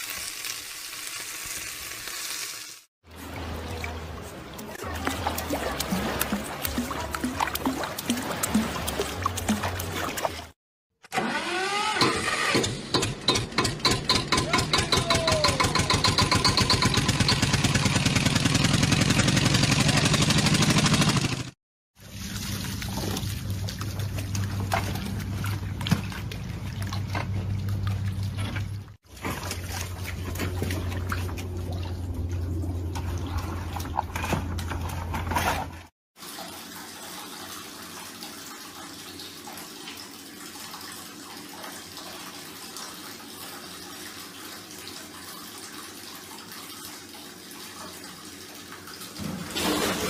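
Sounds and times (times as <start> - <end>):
water running in bathtub: 3.1 - 10.6, 36.2 - 50.0.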